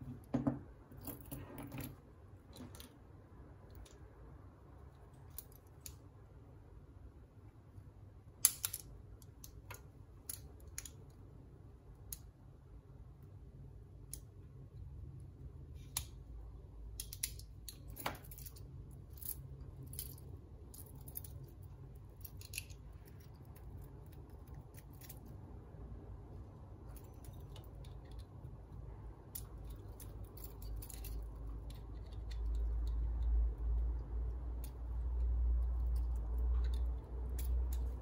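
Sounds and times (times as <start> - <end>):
metal links clicking and clinking: 0.0 - 3.0, 16.9 - 25.4, 26.8 - 38.0.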